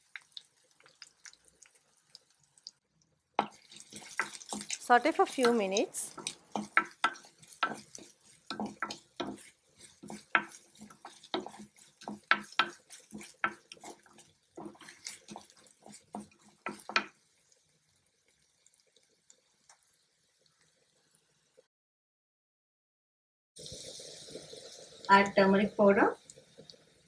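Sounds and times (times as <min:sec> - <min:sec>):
wooden spatula scraping clay pot: 0:03.4 - 0:17.1.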